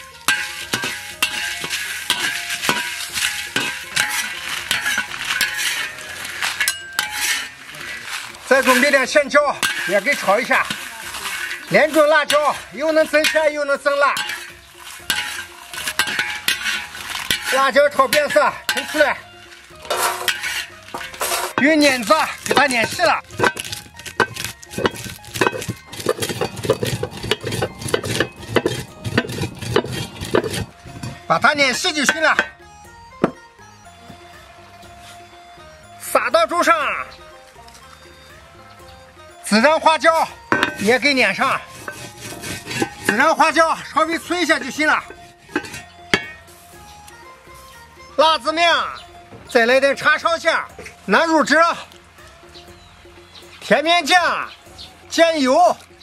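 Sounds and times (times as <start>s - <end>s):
metal ladle scraping a wok: 0.0s - 33.4s, 40.2s - 48.1s
iron roller grinding spices: 0.3s - 19.1s, 19.8s - 32.2s, 41.6s - 43.4s, 44.4s - 46.8s.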